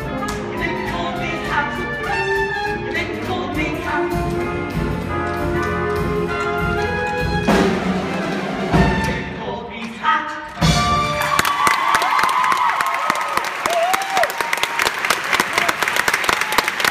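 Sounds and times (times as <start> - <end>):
trumpets and trombones: 0.0 - 9.4
orchestra playing brassy jazzy tune: 0.0 - 9.6, 10.6 - 11.5.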